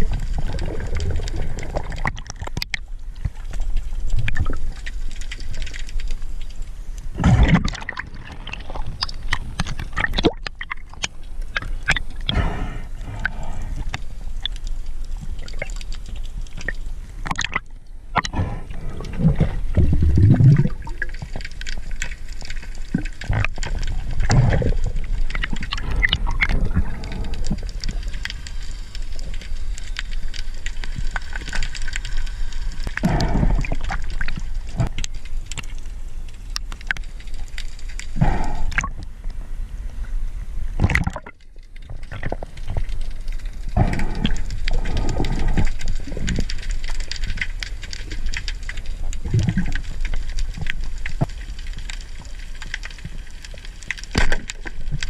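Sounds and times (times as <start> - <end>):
water sloshing and gurgling: 0.0 - 55.0
low rumble: 17.7 - 21.0.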